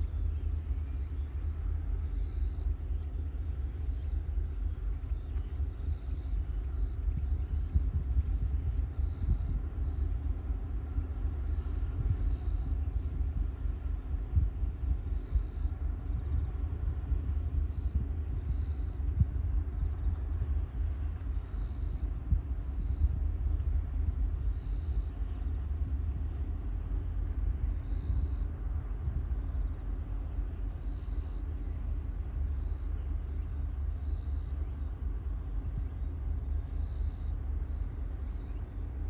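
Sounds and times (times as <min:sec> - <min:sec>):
wind buffeting microphone: 0:00.0 - 0:31.0
insects chirping in trills: 0:00.0 - 0:39.0.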